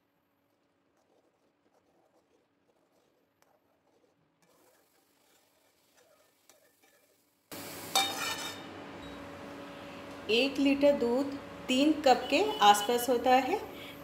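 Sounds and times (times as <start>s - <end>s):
spoon stirring in iron pan: 0.5s - 8.7s.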